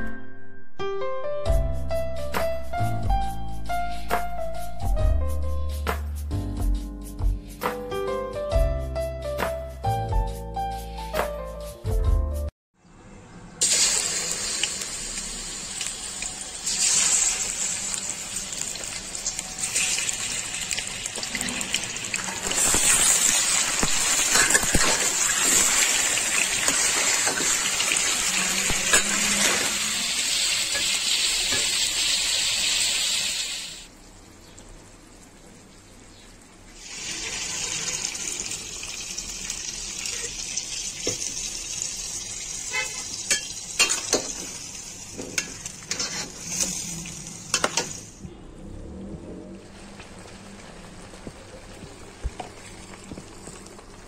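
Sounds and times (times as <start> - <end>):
chicken sizzling in hot oil: 13.6 - 33.9, 36.7 - 48.2, 49.7 - 54.0.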